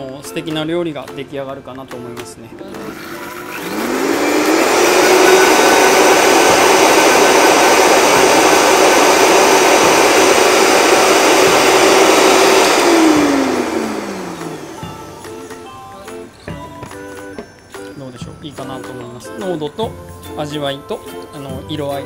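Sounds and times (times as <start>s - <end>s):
blender motor running: 2.6s - 15.4s.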